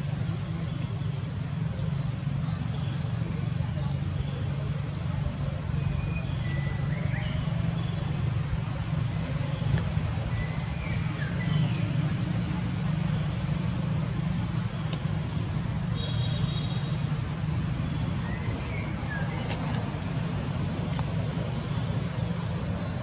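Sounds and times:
insect drone: 0.0s - 23.0s
bird chirps: 5.7s - 8.2s, 9.5s - 12.2s, 17.8s - 19.8s.

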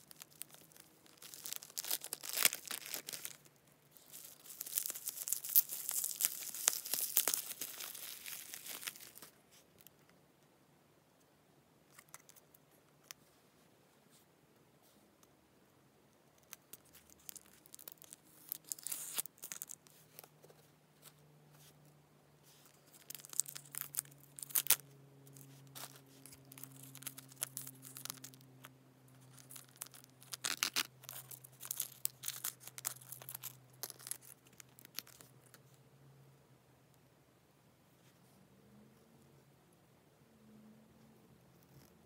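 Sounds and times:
plastic packaging crinkling: 0.0s - 9.9s, 16.4s - 20.3s, 22.6s - 35.6s.

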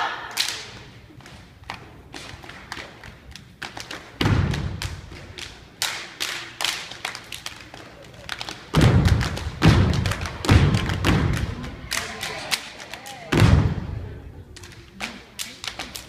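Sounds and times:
crowd voices: 5.1s - 16.0s
heavy thuds of dance landings: 8.7s - 11.6s.

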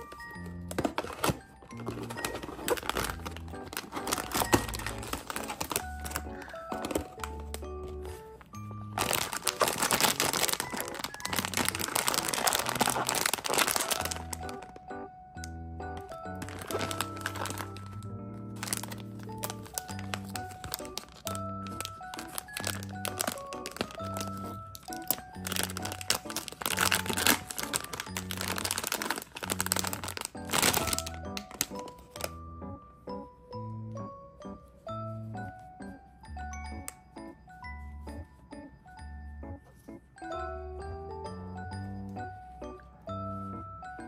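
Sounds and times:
plastic bag crinkling: 0.0s - 14.8s, 16.0s - 32.4s
background music: 0.0s - 44.0s.

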